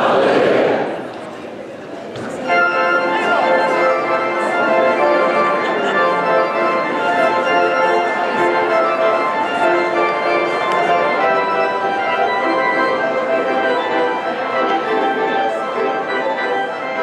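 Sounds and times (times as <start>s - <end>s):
church organ playing chords: 2.4s - 17.0s.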